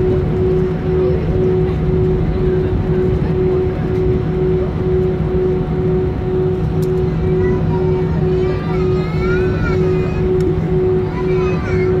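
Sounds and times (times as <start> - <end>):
engine and airframe rumble: 0.0 - 12.0
pulsing humming tone: 0.0 - 12.0.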